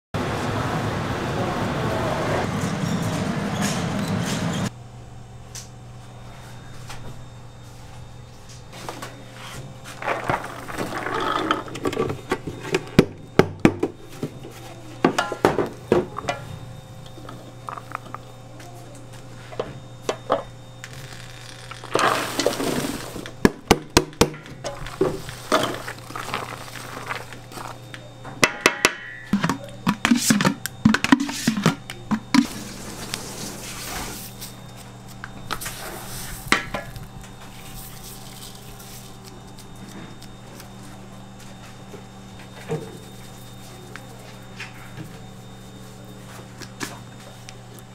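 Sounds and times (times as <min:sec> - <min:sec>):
steady low hum: 0:00.2 - 0:47.9
chopped vegetables rustling: 0:24.7 - 0:27.8.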